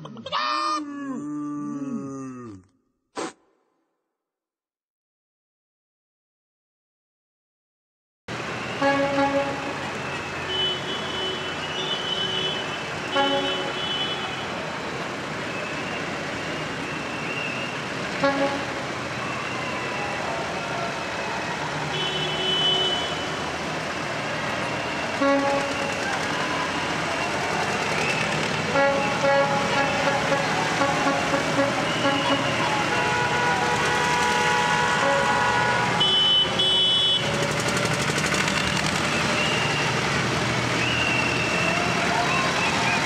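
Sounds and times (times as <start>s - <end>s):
horns tooting: 8.6s - 14.6s, 15.6s - 20.0s, 21.9s - 23.7s, 24.3s - 40.0s
tractor engines running: 23.4s - 43.0s.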